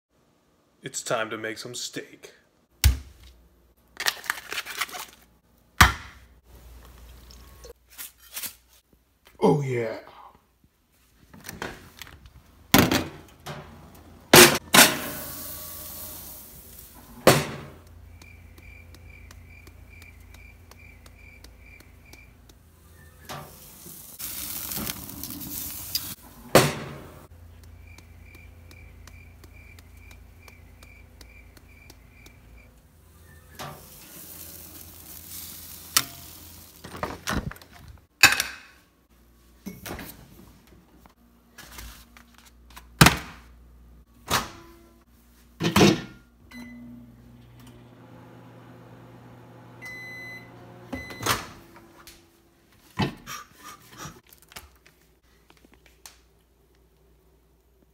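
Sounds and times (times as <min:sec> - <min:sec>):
grill lid clanking: 0:14.3 - 0:16.4
sizzling: 0:14.3 - 0:37.5
refrigerator door opening: 0:50.9 - 0:52.0.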